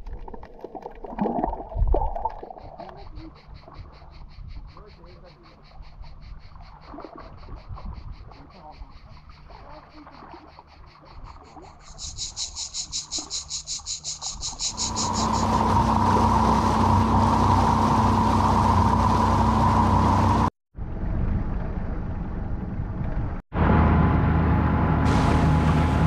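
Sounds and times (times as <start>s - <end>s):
water noise: 0.0s - 20.5s, 24.4s - 26.0s
wind: 0.0s - 26.0s
cicadas buzzing: 2.4s - 18.6s
boat motor droning: 14.6s - 20.5s, 23.6s - 26.0s.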